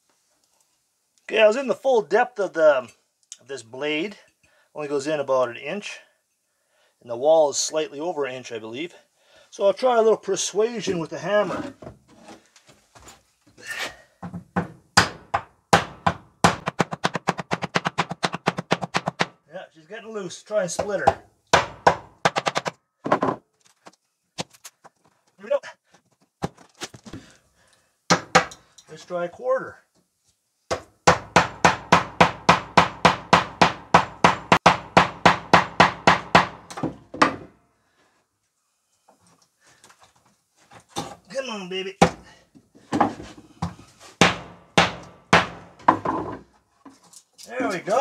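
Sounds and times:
hammer knocking on wooden wall: 14.2s - 19.4s, 20.8s - 23.4s, 30.7s - 37.5s, 42.9s - 46.4s
hammer striking chisel: 44.2s - 45.6s.

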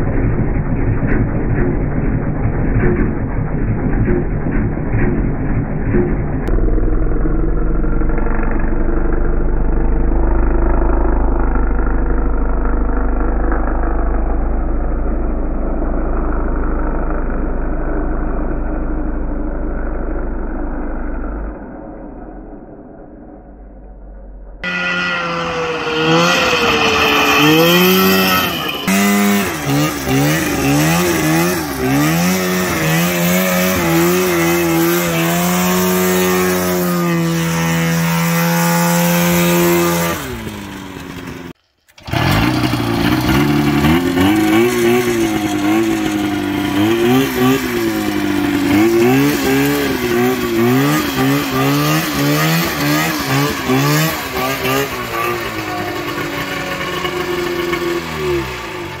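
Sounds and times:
two-stroke engine revving: 0.0s - 21.8s, 24.6s - 59.0s.

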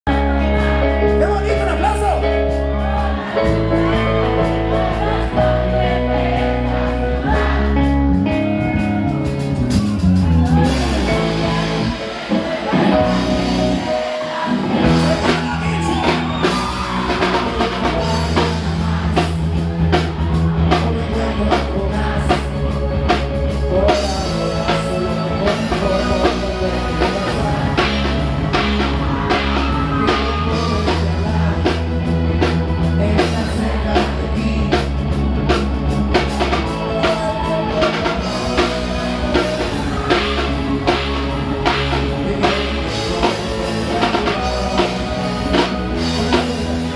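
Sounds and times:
live rock band playing: 0.0s - 46.9s
person singing: 10.3s - 46.9s.

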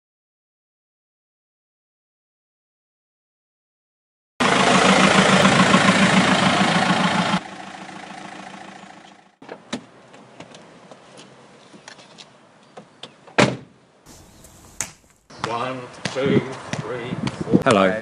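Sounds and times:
van engine running: 4.4s - 9.4s
quiet engine hum: 4.4s - 11.4s.

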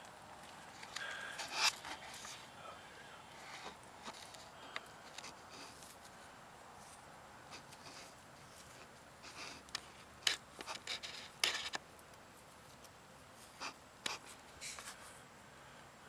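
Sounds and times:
hands scratching and rubbing: 6.8s - 11.8s.

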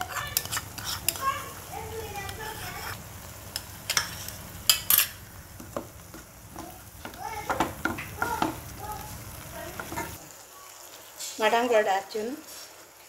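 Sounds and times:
spatula scraping paste in pan: 0.0s - 3.0s
oil sizzling softly: 0.0s - 13.0s.

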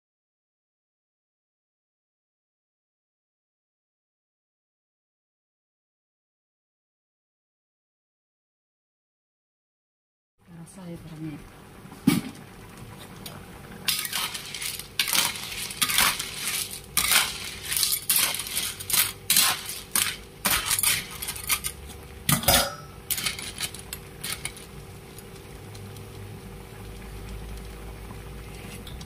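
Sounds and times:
spatula scraping shells in wok: 13.9s - 25.3s
broth bubbling: 24.0s - 29.0s.

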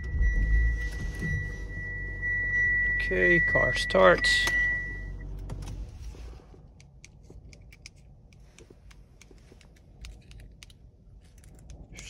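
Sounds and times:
low steady rumble: 0.0s - 12.0s
key fob clicks and rustling: 6.6s - 12.0s.

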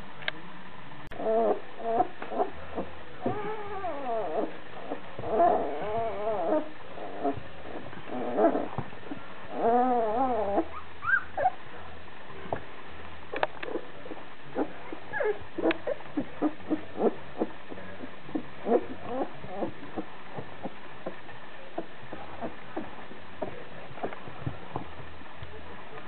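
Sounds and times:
puppies whining and yelping: 1.1s - 11.6s, 13.7s - 20.1s.

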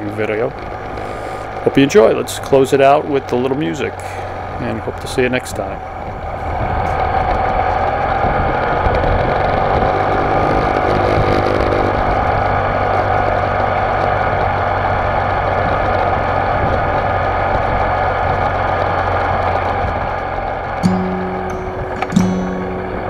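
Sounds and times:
road noise: 0.0s - 23.0s
wind noise: 5.4s - 10.0s, 13.4s - 20.2s
motorcycle engine cruising: 5.8s - 23.0s.

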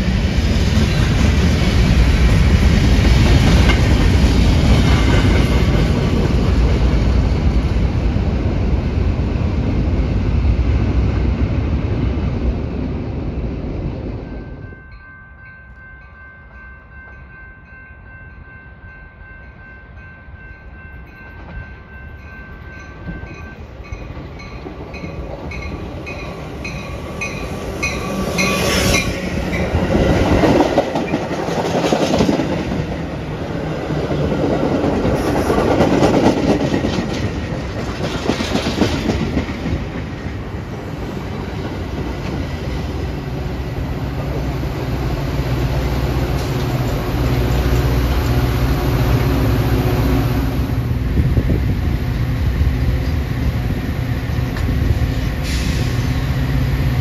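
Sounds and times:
train wheels rumbling over rails: 0.0s - 14.7s, 20.7s - 57.0s
crossing bell dinging: 14.2s - 29.8s.

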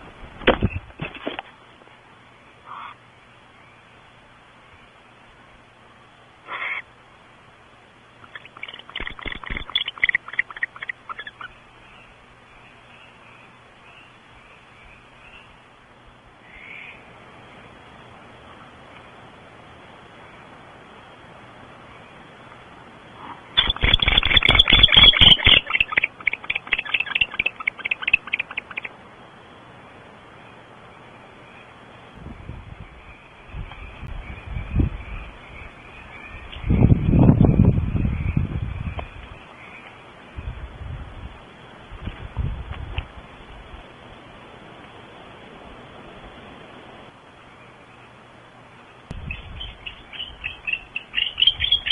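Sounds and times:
steady hiss: 0.0s - 51.9s
barn owl call: 2.6s - 3.0s, 6.4s - 6.9s, 8.2s - 12.0s, 23.2s - 29.0s, 49.1s - 51.9s
rapid twittering chirps: 8.2s - 15.6s, 23.5s - 29.0s, 49.2s - 51.9s.

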